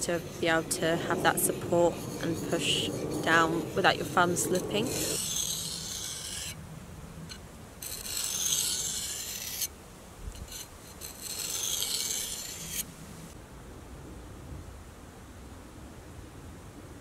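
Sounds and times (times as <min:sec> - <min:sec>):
knife scraping on sharpening stone: 0:00.0 - 0:06.6, 0:07.8 - 0:09.7, 0:10.4 - 0:12.9.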